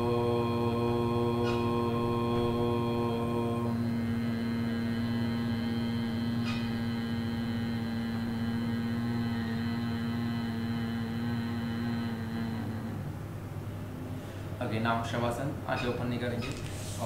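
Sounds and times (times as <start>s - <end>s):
man humming low note: 0.0s - 13.8s.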